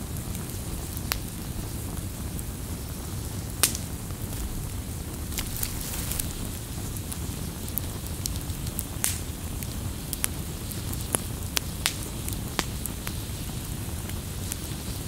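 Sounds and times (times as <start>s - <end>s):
campfire burning: 0.0s - 15.0s
fire popping and crackling: 0.0s - 15.0s.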